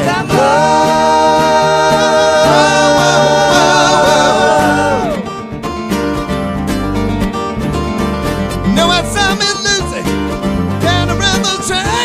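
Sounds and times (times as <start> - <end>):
men singing chord in harmony: 0.0 - 5.4
acoustic guitars: 0.0 - 12.0
keyboard: 0.0 - 12.0.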